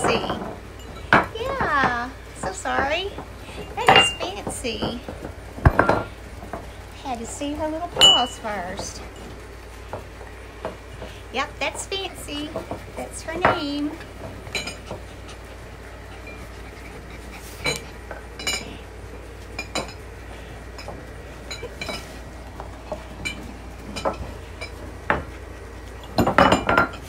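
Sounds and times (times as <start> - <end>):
ceramic bowls clinking: 0.0 - 6.1, 7.9 - 9.4, 12.5 - 15.4, 17.6 - 20.1, 20.7 - 27.0.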